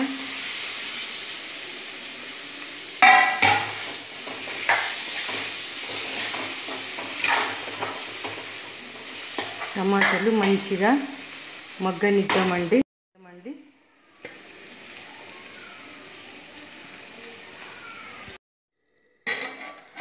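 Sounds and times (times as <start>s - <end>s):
tomatoes sizzling in a pan: 0.0s - 20.0s
spoon scraping a steel pan: 3.0s - 8.4s, 19.3s - 20.0s.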